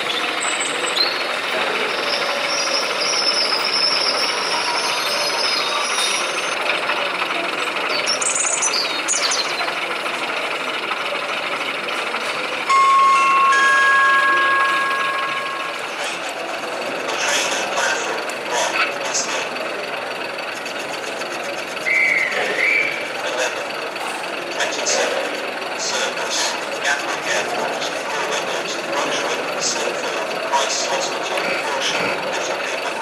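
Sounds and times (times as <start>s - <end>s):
exhibition hall hubbub: 0.0s - 33.0s
model train two-tone horn: 12.7s - 16.0s.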